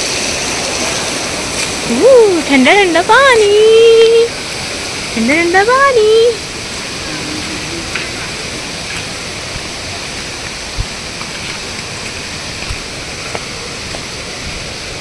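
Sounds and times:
stream water rushing: 0.0 - 15.0
soft low thumps: 10.5 - 11.1.

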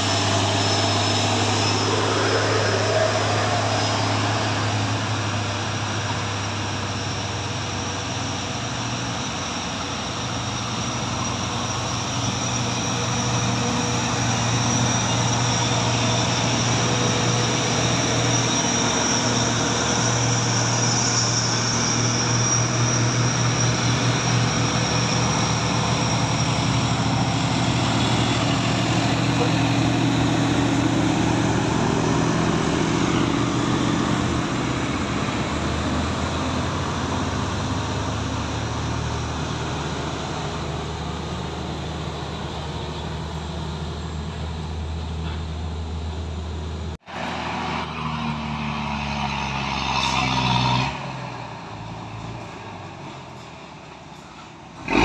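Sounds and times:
car passing: 0.0 - 6.9
diesel truck engines climbing: 0.0 - 55.0.

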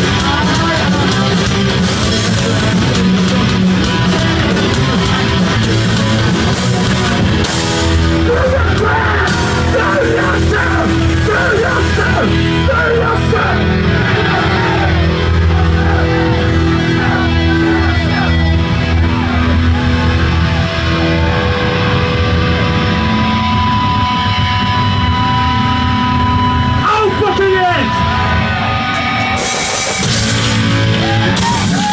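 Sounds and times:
bass: 0.0 - 31.9
distorted electric guitar: 0.0 - 31.9
drums: 0.0 - 31.9
shouted vocals: 8.1 - 21.6, 30.9 - 31.9.

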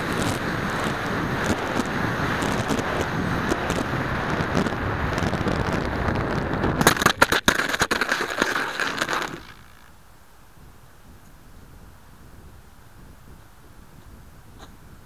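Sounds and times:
skidding rush on snow: 0.0 - 10.0
air rushing over microphone: 0.0 - 15.0.

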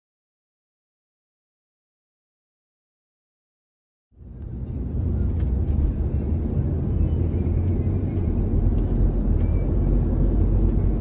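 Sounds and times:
car cabin rumble: 4.2 - 11.0.

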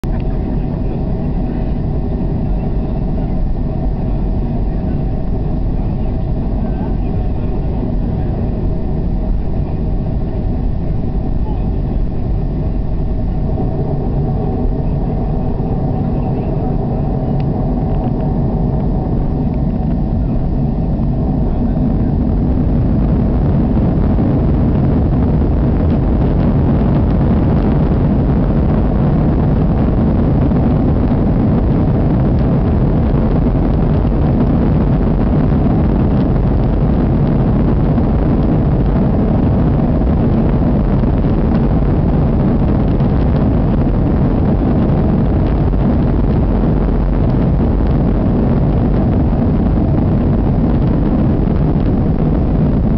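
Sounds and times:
jet engines at takeoff power: 0.0 - 52.9
wheels rumbling on runway: 0.0 - 52.9.

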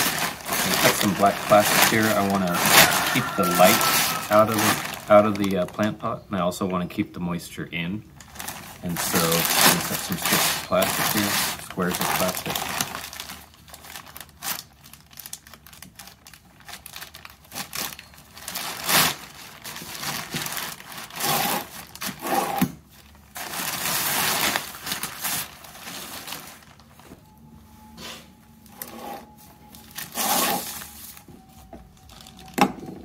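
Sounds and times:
plastic sheeting crinkling: 0.0 - 6.1, 8.2 - 27.9, 28.6 - 32.6.

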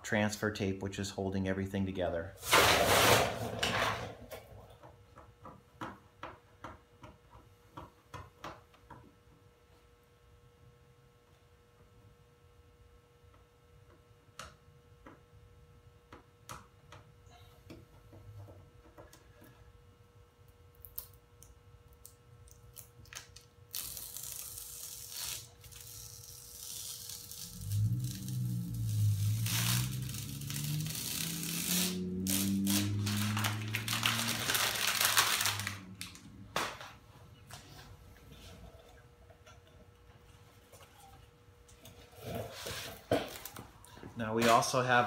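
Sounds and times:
tape peeling with faint ticks: 20.8 - 36.2.

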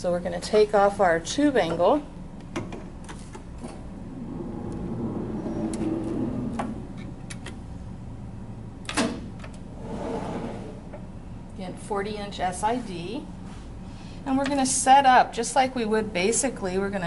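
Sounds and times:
low motor hum: 3.4 - 11.6.

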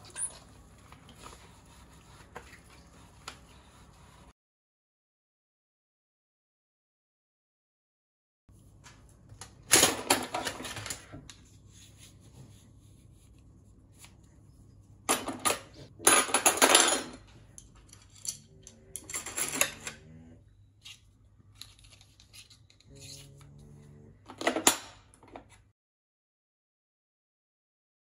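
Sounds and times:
cutlery clattering in a drawer: 9.7 - 11.1, 15.1 - 20.0, 24.3 - 25.1.

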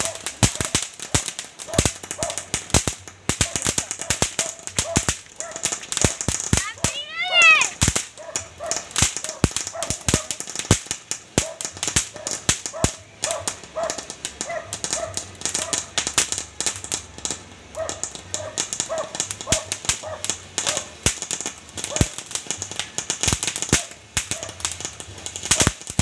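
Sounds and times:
dog barking: 0.0 - 0.7, 1.6 - 2.4, 3.4 - 6.2, 8.2 - 10.4, 11.4 - 15.9, 17.8 - 21.0, 21.9 - 22.1, 23.8 - 24.6
fountain firework crackling: 0.0 - 26.0.

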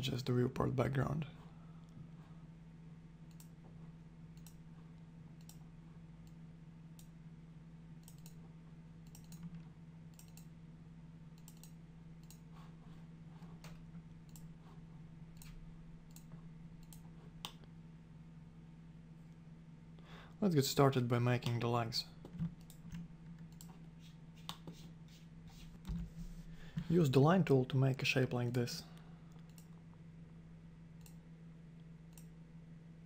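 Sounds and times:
faint steady hum: 0.0 - 33.0
computer mouse clicking: 3.3 - 3.6, 4.4 - 4.6, 5.4 - 5.6, 8.0 - 8.4, 9.0 - 10.5, 11.4 - 12.5, 13.5 - 14.5, 15.4 - 17.6, 22.2 - 24.8, 29.3 - 29.7, 32.1 - 32.4.

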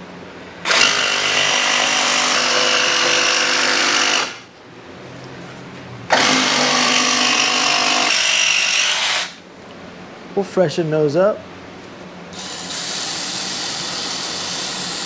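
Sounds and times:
jigsaw cutting plywood: 0.7 - 4.4, 6.1 - 9.4.

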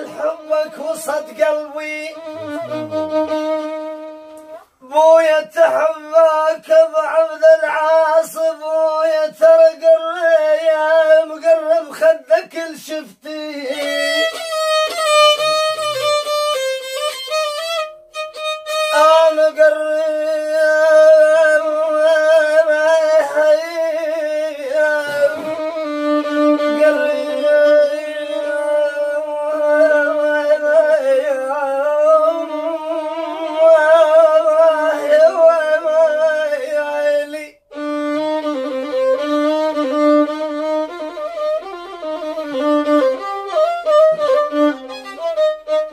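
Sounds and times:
solo violin melody: 0.0 - 4.8, 13.6 - 36.2, 37.7 - 45.9.

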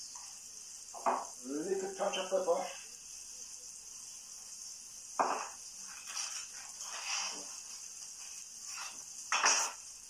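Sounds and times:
vegetables sizzling in a pan: 0.0 - 10.0
knock: 1.0 - 1.3, 5.2 - 5.5
kitchen utensils clattering: 8.8 - 9.8.

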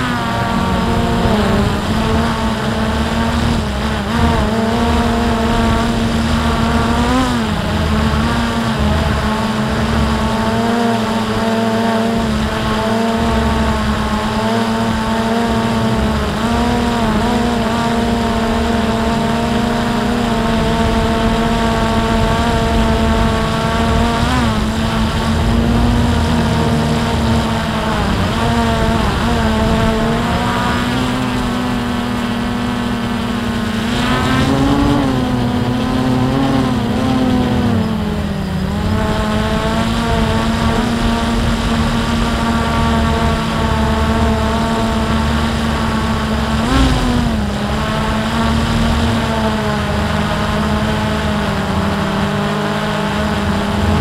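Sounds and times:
drone motors whining: 0.0 - 54.0
low uneven rumble: 20.4 - 30.3, 53.3 - 54.0.

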